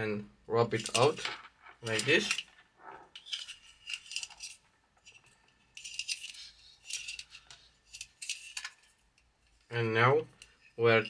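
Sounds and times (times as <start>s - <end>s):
cable scraping and rustling: 0.7s - 11.0s.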